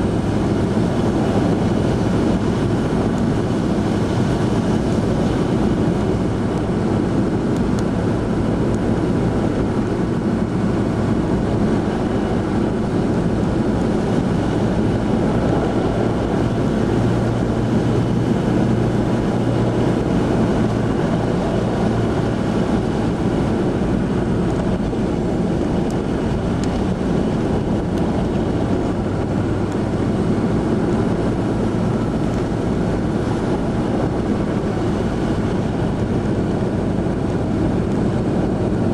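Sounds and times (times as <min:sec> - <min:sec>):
engine drone and tyre noise: 0:00.0 - 0:38.9.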